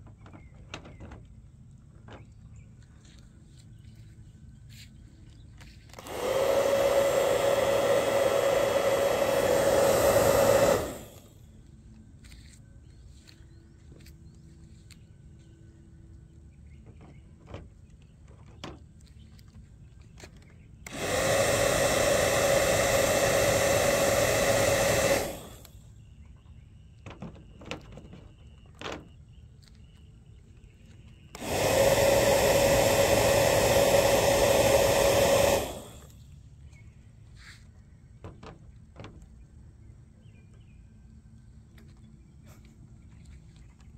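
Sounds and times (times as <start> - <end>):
bubble gun motor whirring: 5.9 - 11.5, 20.8 - 26.0, 31.3 - 36.3.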